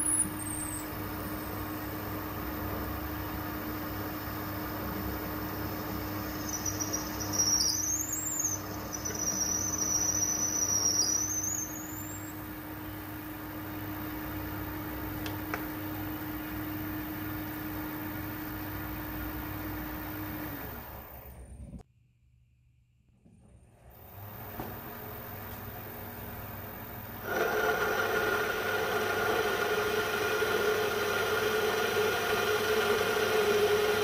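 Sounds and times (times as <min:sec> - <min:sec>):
drill squealing: 0:00.0 - 0:01.0, 0:05.8 - 0:12.4, 0:27.2 - 0:34.0
metal lathe humming: 0:15.8 - 0:21.4, 0:27.0 - 0:34.0.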